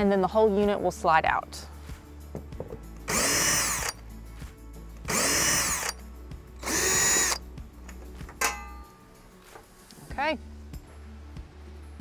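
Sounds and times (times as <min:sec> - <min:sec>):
cordless drill motor spinning: 0:03.1 - 0:04.0, 0:05.1 - 0:06.0, 0:06.6 - 0:07.4.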